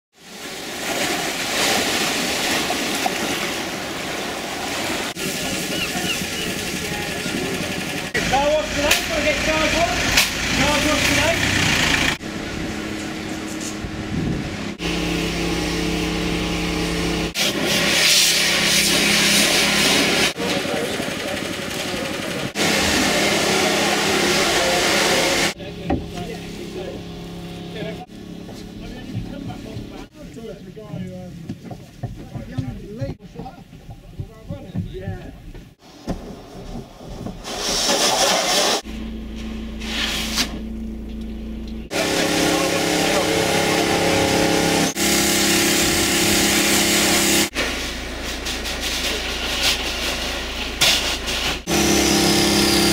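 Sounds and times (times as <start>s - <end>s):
pressure washer spraying window: 4.7s - 30.1s, 37.4s - 38.9s, 41.9s - 52.9s
motor hum: 5.7s - 17.7s, 18.4s - 32.2s, 38.8s - 48.6s, 51.6s - 52.9s.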